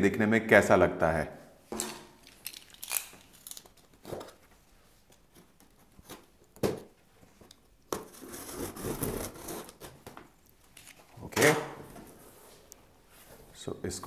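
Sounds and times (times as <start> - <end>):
packing tape ripping: 1.8 - 4.4.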